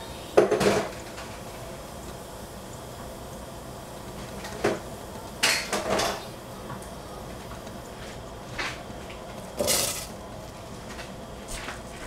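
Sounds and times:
dishes clattering: 5.4s - 6.3s
blueberries rattling into saucepan: 9.6s - 10.2s.

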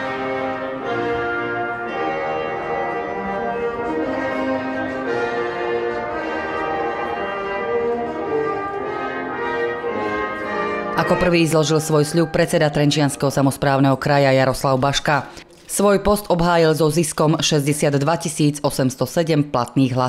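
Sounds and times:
slow brass orchestral music: 0.0s - 15.7s.

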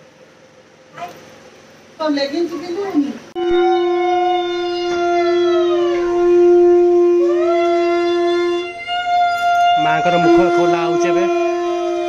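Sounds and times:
conch shell blown: 3.4s - 12.0s.

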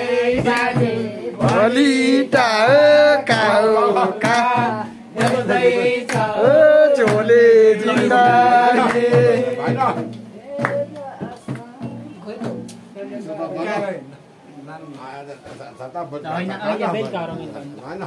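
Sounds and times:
sharp hits or claps: 0.0s - 12.9s.

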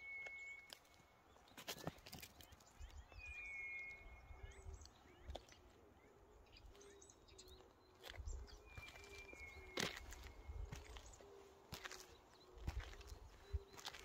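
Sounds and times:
bird whistling and chirping: 0.0s - 1.0s, 2.8s - 5.3s, 8.3s - 11.2s.

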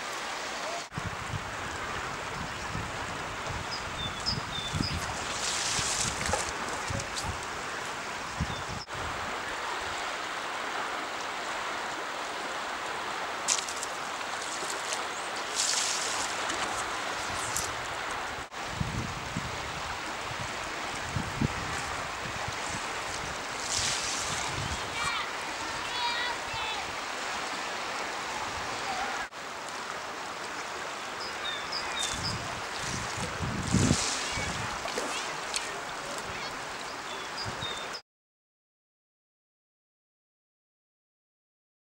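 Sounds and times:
river rushing: 0.0s - 38.0s
wind buffeting microphone: 0.9s - 9.3s, 15.7s - 25.8s, 31.9s - 37.8s.

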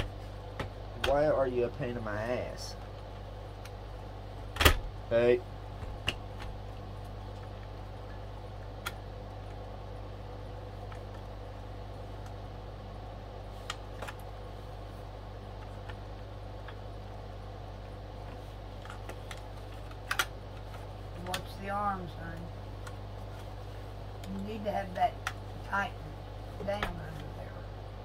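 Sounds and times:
low hum: 0.0s - 28.0s
record player parts clicking: 5.8s - 9.8s, 13.6s - 14.3s, 15.5s - 23.4s.

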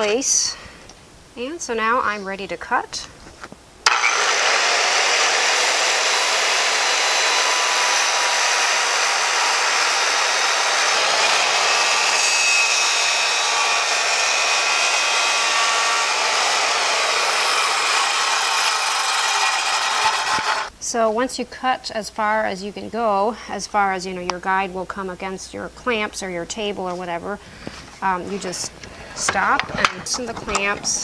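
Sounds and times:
circular saw cutting wood: 3.8s - 20.7s.

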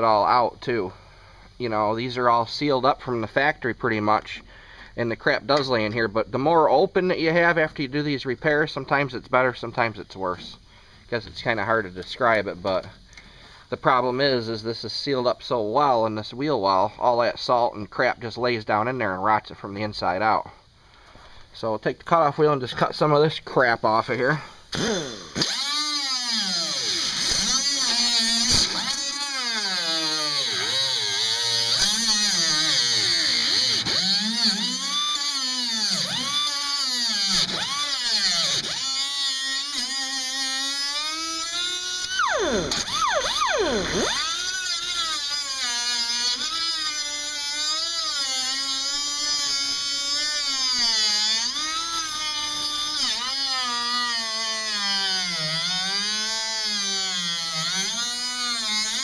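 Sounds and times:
angle grinder cutting metal: 24.7s - 59.0s.

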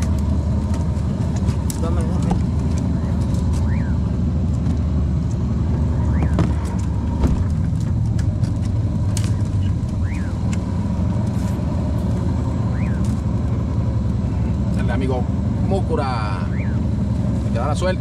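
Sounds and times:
outboard motor droning: 5.5s - 7.5s, 12.0s - 18.0s.

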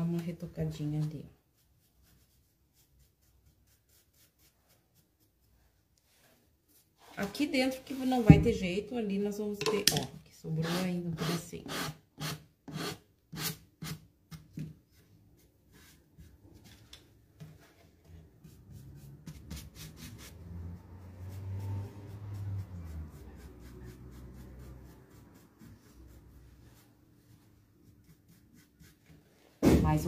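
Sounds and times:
soft rubbing: 0.8s - 8.6s, 22.2s - 29.6s.

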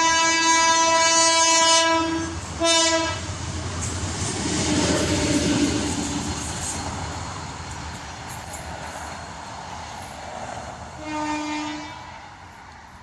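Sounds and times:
locomotive horn blasts: 0.0s - 3.3s, 11.0s - 12.1s
locomotive rumble and wheel noise: 0.0s - 13.0s.

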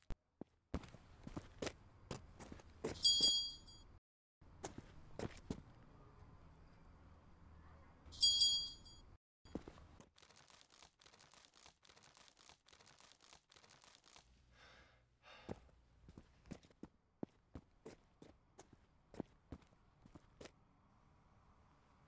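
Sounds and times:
high metallic ring: 3.0s - 3.9s, 8.2s - 9.2s
breathy exhale: 14.5s - 15.6s.

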